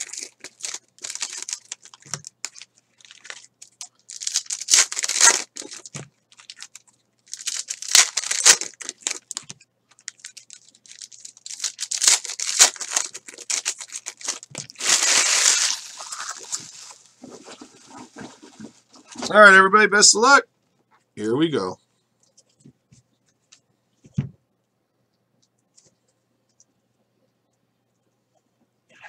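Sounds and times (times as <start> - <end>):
foil wrappers tearing and crinkling: 0.0 - 19.2.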